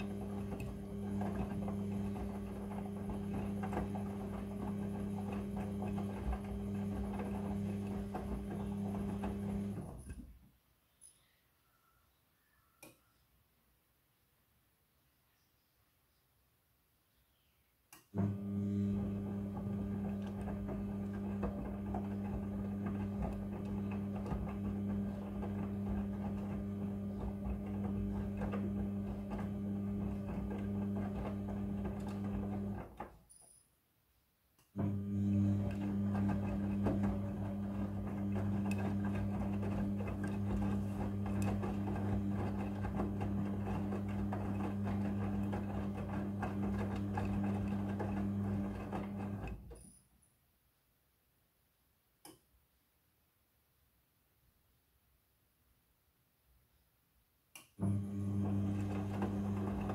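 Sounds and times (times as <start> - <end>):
clothes churning in drum: 0.0 - 10.0, 18.9 - 33.0, 34.9 - 49.5
washing machine motor hum: 0.0 - 10.4, 18.1 - 33.2, 34.7 - 49.8, 57.8 - 59.9.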